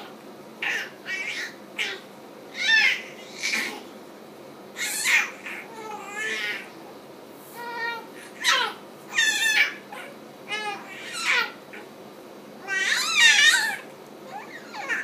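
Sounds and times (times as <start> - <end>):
baby squealing and babbling: 0.6 - 3.8, 4.8 - 6.7, 7.6 - 11.9, 12.6 - 15.0.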